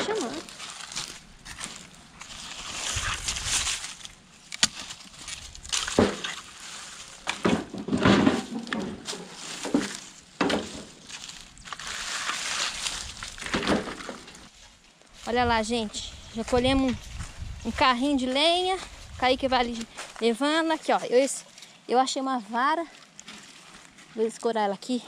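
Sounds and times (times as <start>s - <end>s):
footsteps crunching on leaves: 0.0s - 7.4s, 9.0s - 13.6s, 14.4s - 21.2s
twigs cracking: 0.0s - 7.7s, 8.4s - 14.5s.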